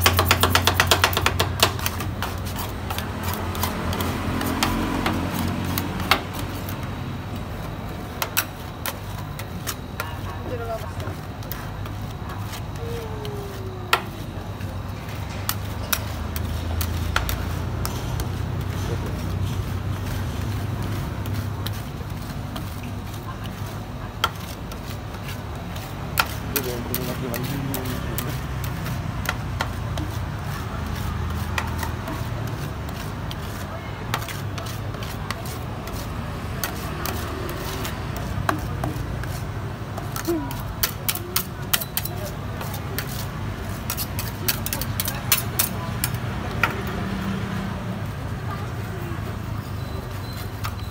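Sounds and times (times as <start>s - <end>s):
metal spatulas tapping and scraping: 0.0s - 47.3s
spatulas clacking on metal plate: 43.9s - 46.2s.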